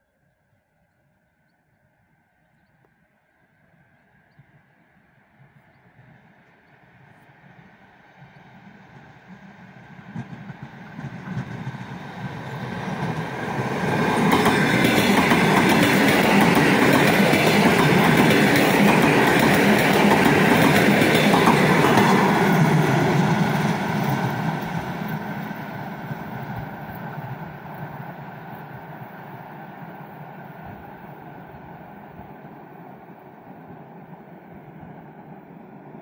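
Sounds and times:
electric train passing: 0:03.6 - 0:36.0.

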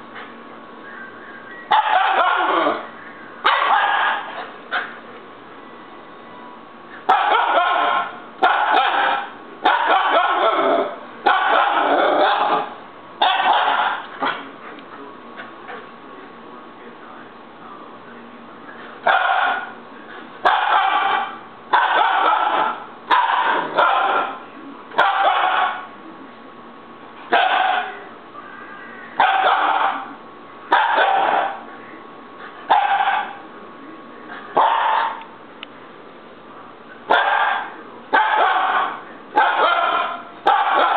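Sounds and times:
puppy yelling: 0:01.7 - 0:05.0, 0:07.1 - 0:14.4, 0:19.0 - 0:19.8, 0:20.4 - 0:24.4, 0:25.0 - 0:25.9, 0:27.3 - 0:28.1, 0:29.2 - 0:31.7, 0:32.7 - 0:33.4, 0:34.5 - 0:35.3, 0:37.1 - 0:40.9.

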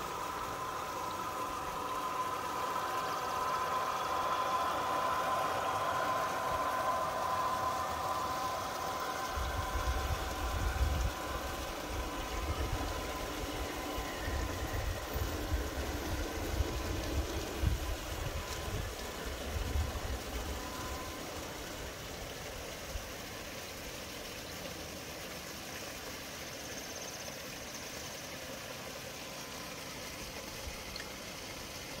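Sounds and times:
model train whine: 0:00.0 - 0:32.0
wind buffeting microphone: 0:09.2 - 0:21.0.

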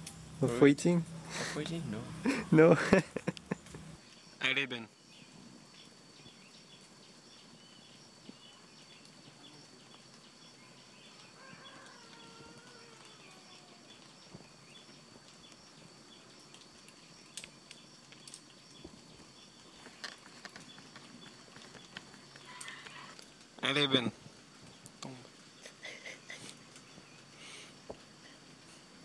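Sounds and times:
small chirps: 0:05.2 - 0:23.5.

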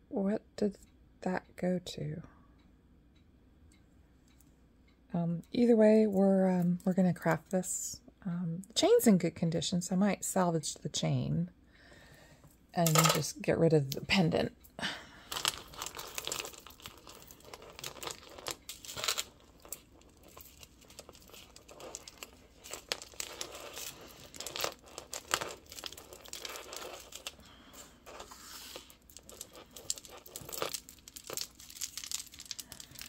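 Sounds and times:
beads and chain clicking: 0:15.3 - 0:33.0
plastic bag crinkling: 0:15.3 - 0:33.0.

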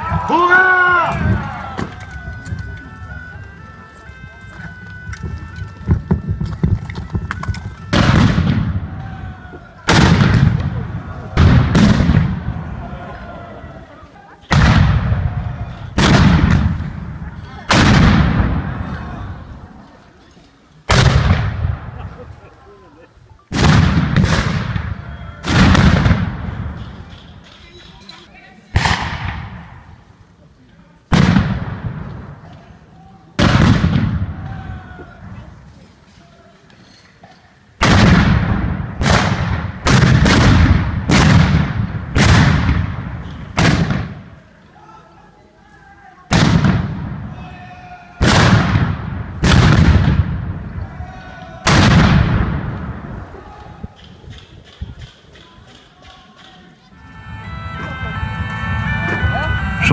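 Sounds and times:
black-powder gunshots echoing: 0:07.9 - 0:08.9, 0:09.9 - 0:12.7, 0:14.5 - 0:17.1, 0:17.7 - 0:18.9, 0:20.9 - 0:22.0, 0:23.5 - 0:27.0, 0:28.8 - 0:29.9, 0:31.1 - 0:32.4, 0:33.4 - 0:34.5, 0:37.8 - 0:44.3, 0:46.3 - 0:47.3, 0:48.2 - 0:50.6, 0:51.6 - 0:53.2.

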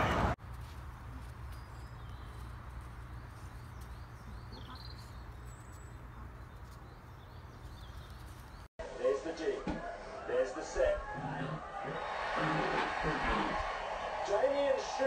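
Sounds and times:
birds chirping: 0:00.5 - 0:08.7.

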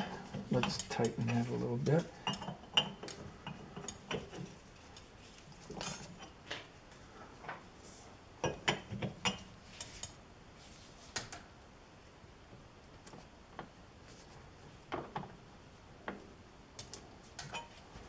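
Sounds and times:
light metallic clicks and clinks: 0:17.4 - 0:17.8.

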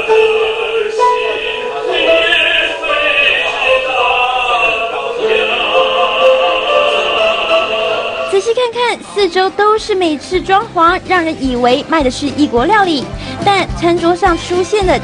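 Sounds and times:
man singing opera: 0:00.0 - 0:08.3.

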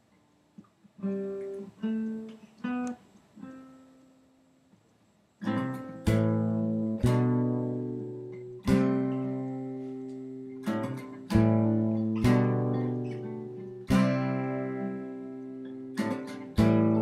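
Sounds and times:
acoustic guitar notes picked: 0:01.0 - 0:04.4, 0:05.4 - 0:17.0
acoustic guitar chords strummed: 0:05.4 - 0:17.0.

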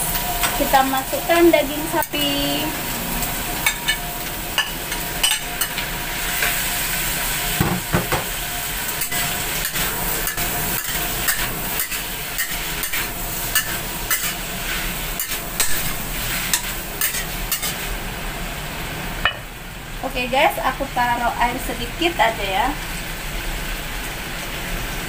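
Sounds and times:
beef sizzling in hot oil: 0:00.0 - 0:25.0
spatula scraping a wok: 0:08.8 - 0:18.0.

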